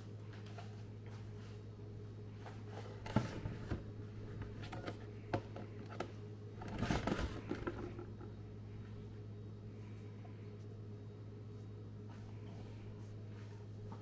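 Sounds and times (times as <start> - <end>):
steady low hum: 0.0 - 14.0
hand handling plastic basket: 2.4 - 8.3
rustling and clatter: 2.5 - 8.3.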